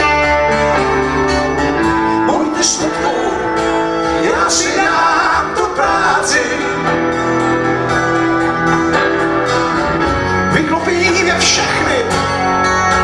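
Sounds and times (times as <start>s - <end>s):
acoustic guitar: 0.0s - 13.0s
bass guitar: 0.0s - 13.0s
blues band playing: 0.0s - 13.0s
men singing: 2.1s - 9.0s, 10.5s - 12.2s.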